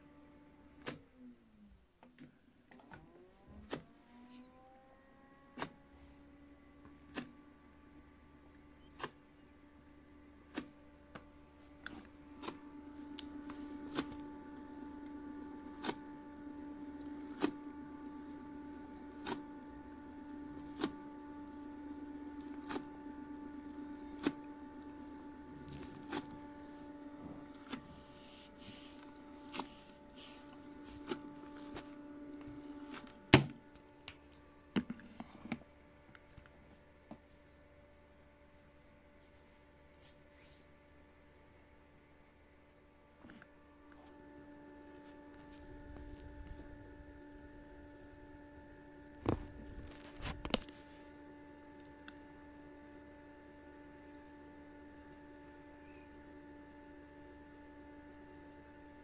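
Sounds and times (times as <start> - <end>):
washing machine motor hum: 2.7 - 59.0
door shutting thump: 33.3 - 33.6.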